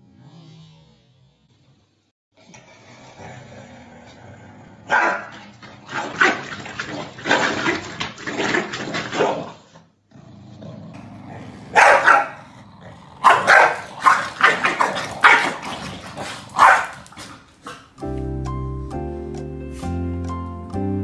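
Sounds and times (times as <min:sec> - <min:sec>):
dogs barking: 0:04.9 - 0:05.3, 0:11.3 - 0:18.0.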